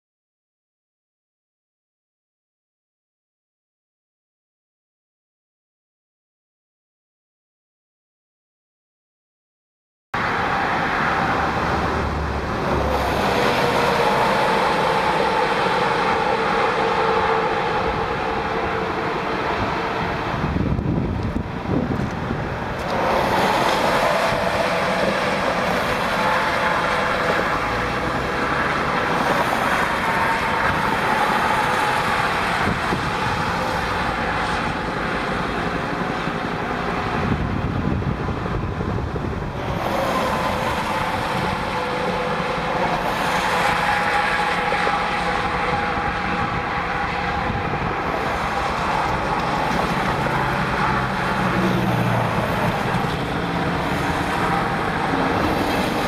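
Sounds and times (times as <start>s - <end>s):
highway traffic rushing: 10.2s - 56.0s
whining tyre tone: 10.2s - 56.0s.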